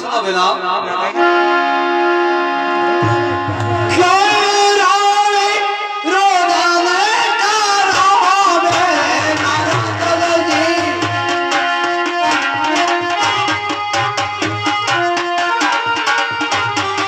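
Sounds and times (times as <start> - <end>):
harmonium sustained notes: 1.1 - 7.8
hand drum quick beat: 3.0 - 4.4, 8.7 - 17.0.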